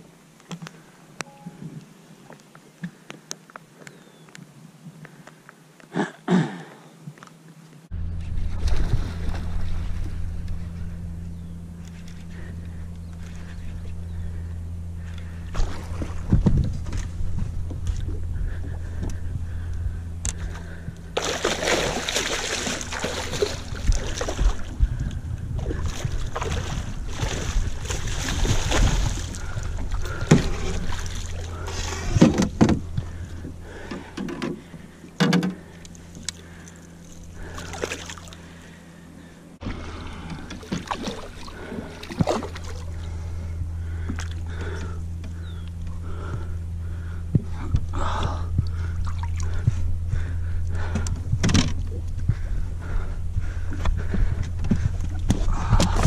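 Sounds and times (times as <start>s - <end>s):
boat motor humming: 5.0s - 56.0s
water splashing: 8.4s - 10.4s, 21.2s - 25.0s, 25.6s - 33.3s, 36.0s - 38.5s, 39.6s - 43.2s.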